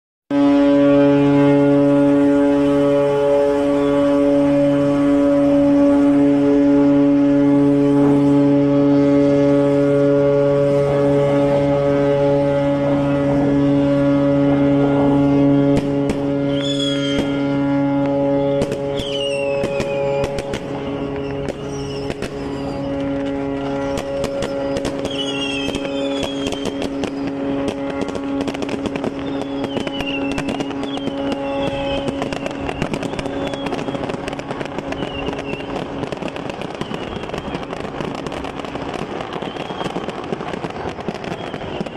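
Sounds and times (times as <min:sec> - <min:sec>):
firecrackers crackling: 0:00.3 - 0:41.9
ship's horn blast: 0:00.3 - 0:41.9
high falling whistles: 0:16.5 - 0:17.5, 0:18.4 - 0:23.0, 0:23.8 - 0:27.3, 0:29.1 - 0:33.9, 0:39.4 - 0:40.1.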